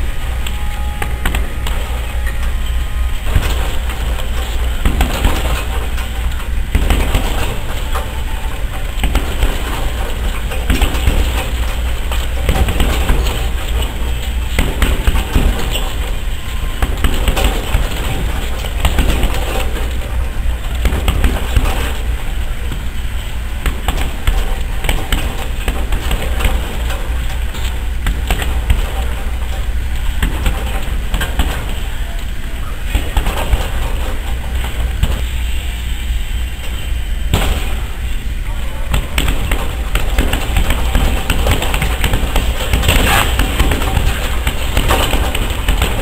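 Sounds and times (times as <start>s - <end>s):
low hum: 0.0s - 46.0s
punches on heavy bag: 8.9s - 11.6s, 12.3s - 13.9s, 38.9s - 46.0s.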